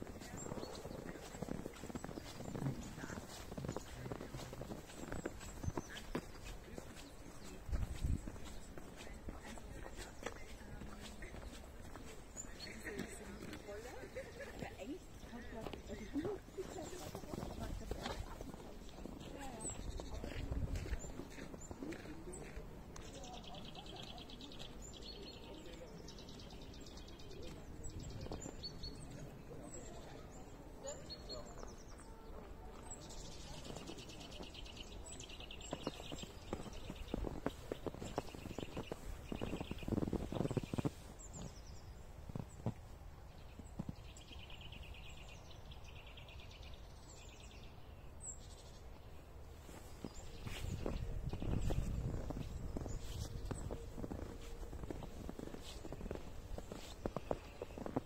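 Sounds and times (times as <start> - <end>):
footsteps crunching in snow: 0.0 - 30.3, 31.1 - 45.8, 48.5 - 58.0
small birds chattering trills: 0.0 - 42.8.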